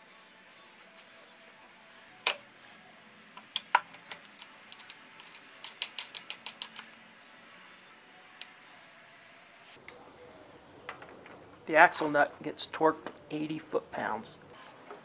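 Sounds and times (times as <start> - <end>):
metal-on-metal clicks: 3.5 - 7.0.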